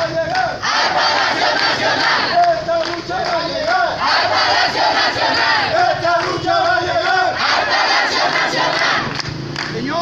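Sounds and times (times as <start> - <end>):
crowd chanting: 0.0 - 9.2.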